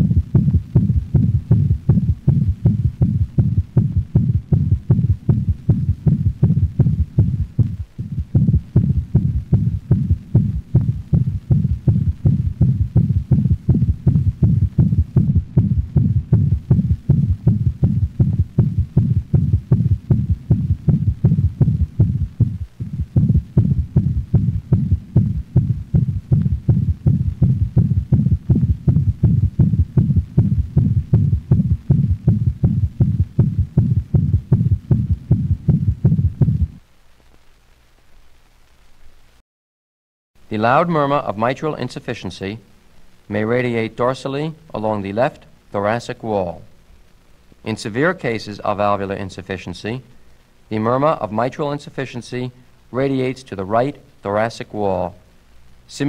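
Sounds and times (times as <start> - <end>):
fast heartbeat with murmur: 0.0 - 36.8
low heart thud: 0.0 - 36.8.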